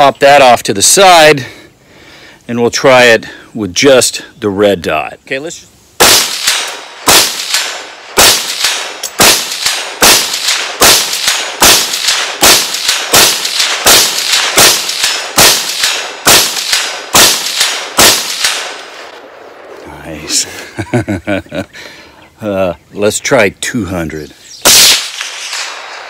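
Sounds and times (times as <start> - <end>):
rifle shots with echo: 6.0 - 19.8, 24.6 - 26.0.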